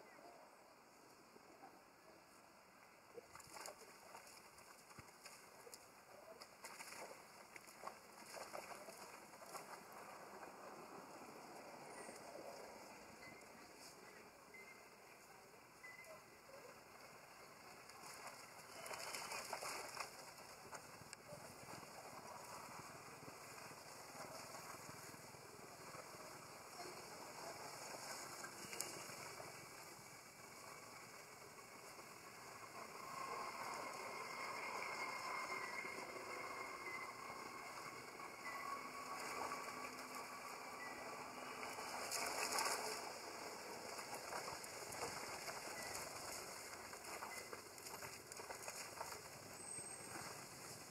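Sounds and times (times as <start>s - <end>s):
monkeys splashing in water: 18.0s - 20.8s.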